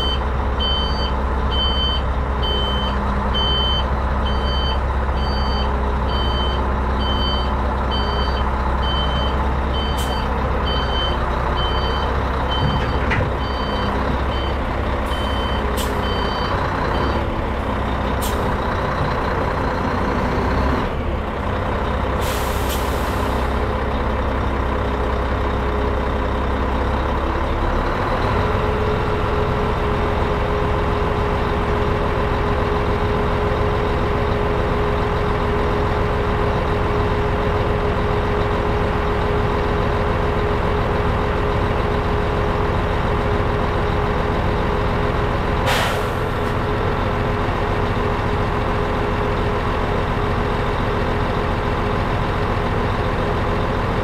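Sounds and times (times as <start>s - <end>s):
reverse alarm beeping: 0.0s - 17.2s
diesel truck engine running: 0.0s - 54.0s.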